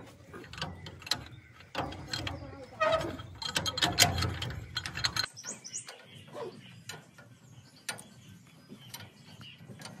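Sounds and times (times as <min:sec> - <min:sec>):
bird chirps: 0:00.0 - 0:10.0
metal tools clinking: 0:00.2 - 0:05.5.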